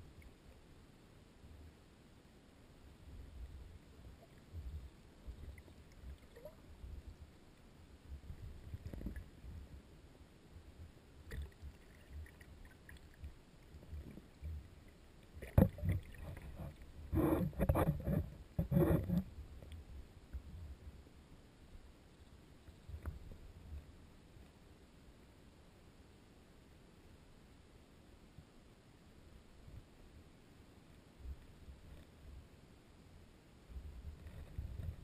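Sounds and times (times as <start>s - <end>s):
underwater rumble of water: 3.0s - 9.9s, 10.5s - 21.0s.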